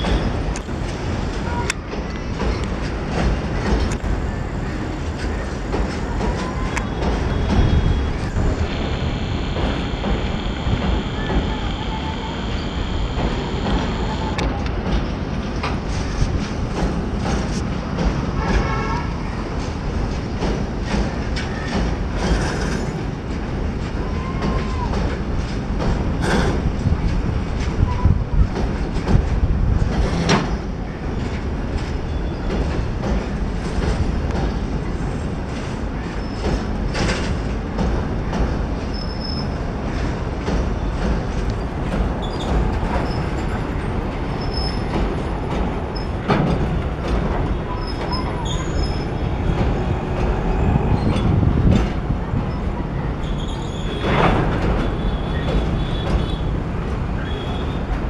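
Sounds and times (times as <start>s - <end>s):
train wheels rumbling on rails: 0.0s - 58.0s
faint high squeaks: 47.6s - 49.1s.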